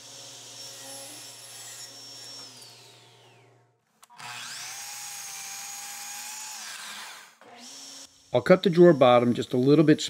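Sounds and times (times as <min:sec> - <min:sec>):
power saw motor winding down: 0:00.0 - 0:09.8
miter saw whining: 0:04.1 - 0:09.9.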